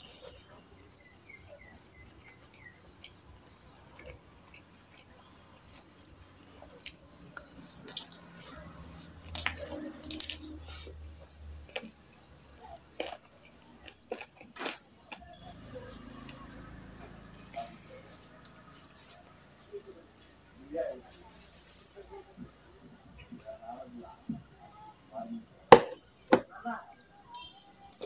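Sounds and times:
chewing and biting chicken: 0:00.0 - 0:20.2.

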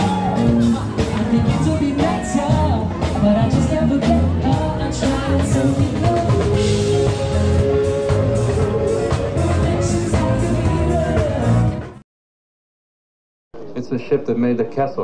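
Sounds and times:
bass line: 0:00.0 - 0:12.0
drum kit steady beat: 0:00.0 - 0:12.0
person singing: 0:00.0 - 0:12.0.

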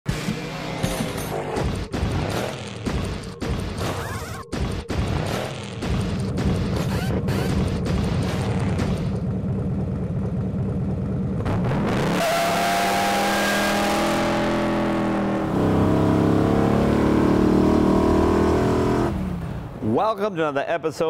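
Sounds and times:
car engine revving: 0:05.2 - 0:19.8.

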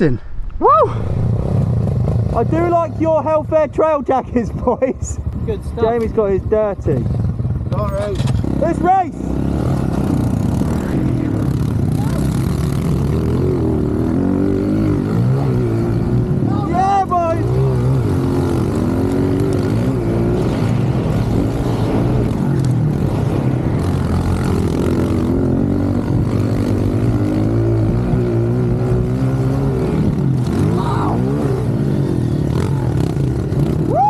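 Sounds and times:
pit bike engines racing: 0:00.0 - 0:34.0.

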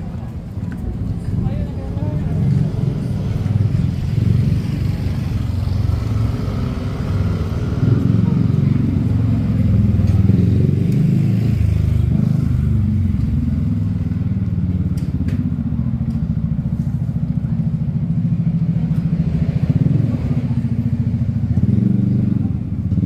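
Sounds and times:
motorbike engine rumbling: 0:00.0 - 0:23.0.

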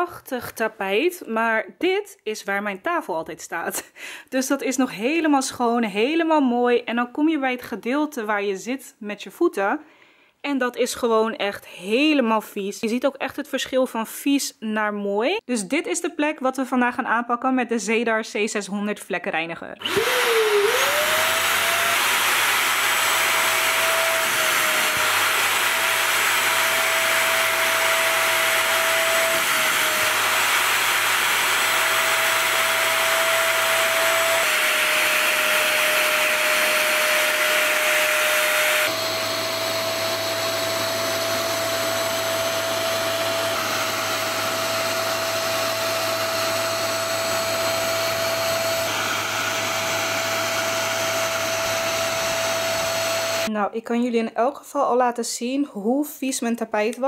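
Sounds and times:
spot cleaner suction motor whining: 0:19.8 - 0:53.5.

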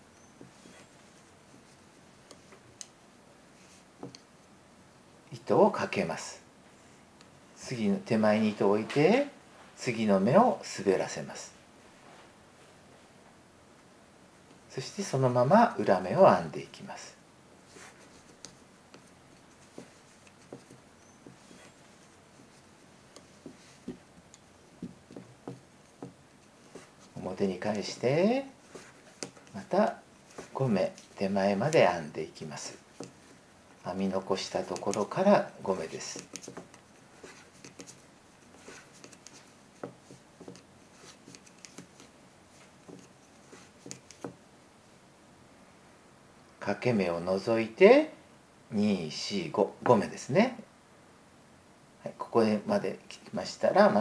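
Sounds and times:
soft handling of wool: 0:00.0 - 0:04.6, 0:05.3 - 0:13.4, 0:14.4 - 0:45.0
wooden knitting needles clicking: 0:28.7 - 0:29.6, 0:34.4 - 0:35.2, 0:35.8 - 0:38.0, 0:38.6 - 0:42.1, 0:43.7 - 0:44.4.

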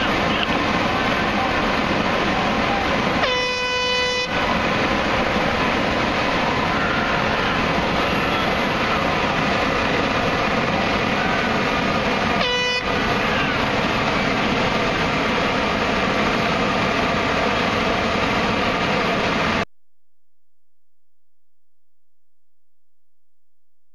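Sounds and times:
loud outdoor noise: 0:00.0 - 0:19.7
horn blast: 0:03.2 - 0:04.5, 0:12.4 - 0:13.8.

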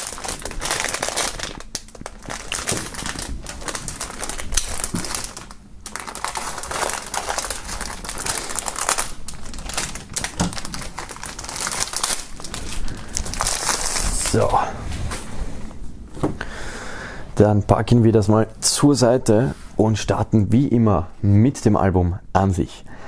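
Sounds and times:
plastic foil crinkling: 0:00.0 - 0:14.6.

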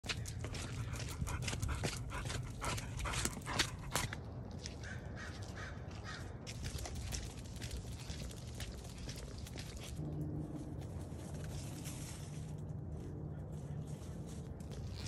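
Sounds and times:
crow cawing: 0:04.8 - 0:06.4
low rumble: 0:06.9 - 0:14.9.

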